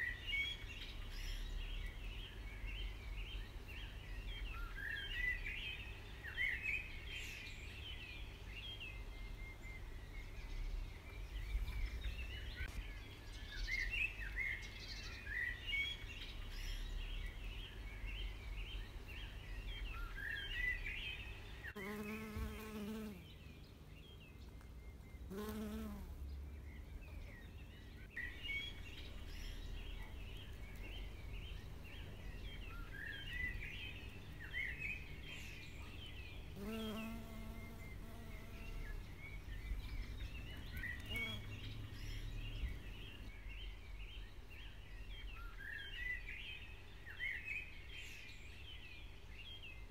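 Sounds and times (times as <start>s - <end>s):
small birds chirping: 0.0s - 49.9s
bee buzzing: 21.8s - 23.2s, 25.3s - 26.2s, 36.5s - 38.9s, 41.0s - 41.6s.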